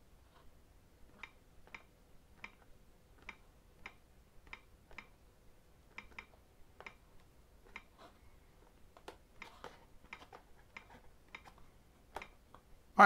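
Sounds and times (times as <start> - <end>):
tapping on a touchscreen: 5.9 - 8.0, 8.9 - 12.6.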